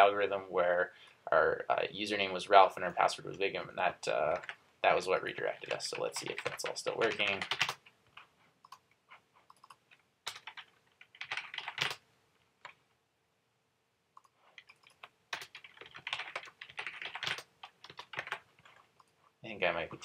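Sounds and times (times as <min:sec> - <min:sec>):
typing on computer keyboard: 0:05.6 - 0:07.9, 0:09.4 - 0:12.0, 0:14.2 - 0:19.2.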